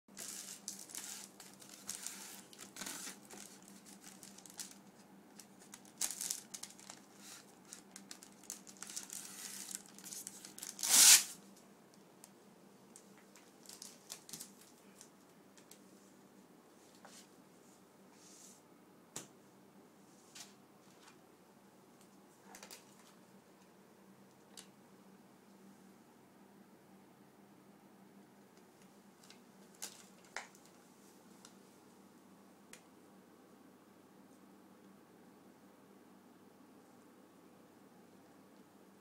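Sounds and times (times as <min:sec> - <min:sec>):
plastic sheet crinkling: 0:00.1 - 0:11.4, 0:13.0 - 0:15.1, 0:29.2 - 0:30.8.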